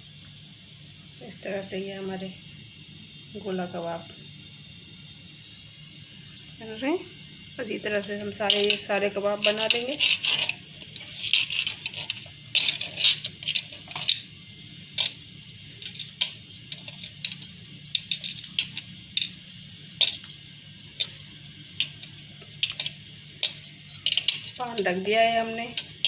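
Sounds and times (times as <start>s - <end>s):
low steady hum: 0.0s - 26.0s
light metallic clinks: 6.2s - 6.6s, 7.8s - 26.0s.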